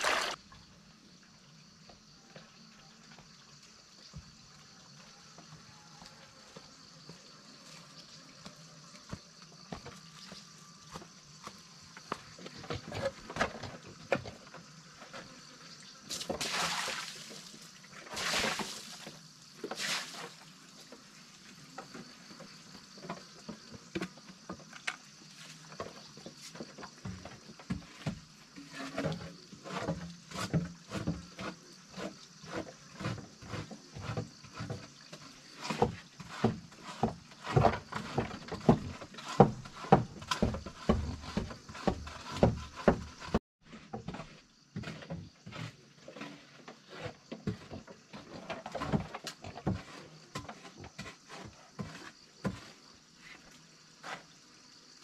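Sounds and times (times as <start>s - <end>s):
feed splashing from bucket: 0.0s - 0.4s, 16.1s - 20.5s.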